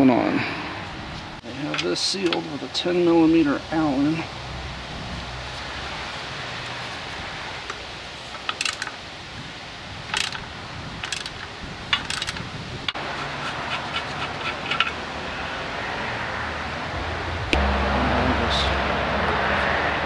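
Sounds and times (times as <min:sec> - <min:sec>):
small metallic clicks: 0:07.7 - 0:09.0, 0:10.1 - 0:10.4, 0:11.0 - 0:13.0
socket ratchet clicking: 0:08.4 - 0:08.9, 0:10.1 - 0:10.4, 0:11.0 - 0:12.5.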